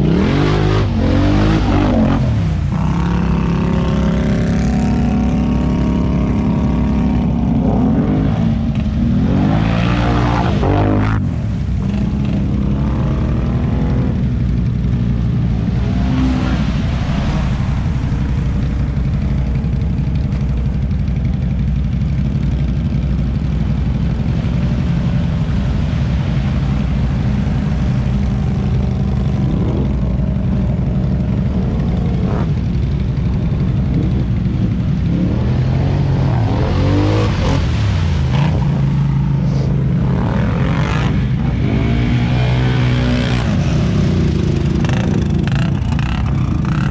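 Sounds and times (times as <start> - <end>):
atv engines running: 0.0 - 46.9
engines revving: 0.0 - 46.9
engine idling: 11.0 - 36.2.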